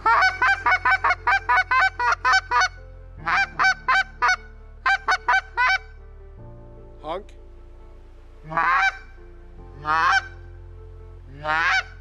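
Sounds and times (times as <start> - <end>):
goose call clucks: 0.0 - 5.9, 8.4 - 9.0, 9.8 - 10.4, 11.3 - 12.0.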